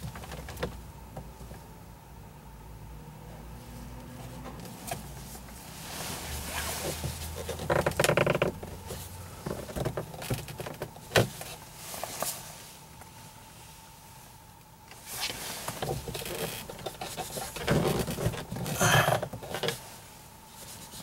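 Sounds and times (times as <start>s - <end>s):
plastic rustling scraping and clicks: 6.5s - 12.4s, 14.9s - 19.8s.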